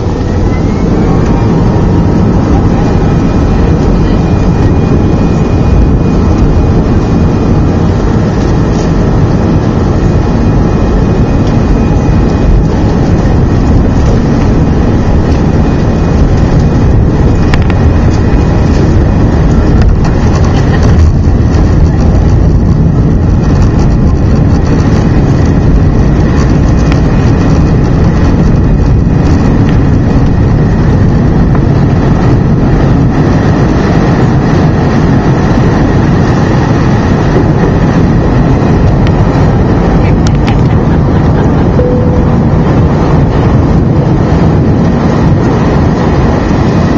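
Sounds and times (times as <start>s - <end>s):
jet engines roaring: 0.0s - 46.9s
high whining tones: 40.9s - 44.1s.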